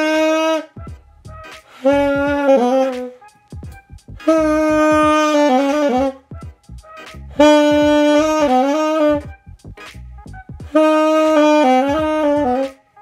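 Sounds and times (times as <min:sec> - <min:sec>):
saxophone long held notes: 0:00.0 - 0:01.0, 0:01.7 - 0:03.2, 0:04.2 - 0:06.3, 0:07.3 - 0:09.3, 0:10.7 - 0:12.8.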